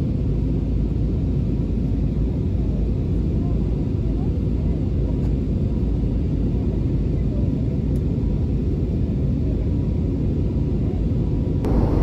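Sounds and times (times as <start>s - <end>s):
jet engine rumble in cabin: 0.0s - 12.0s.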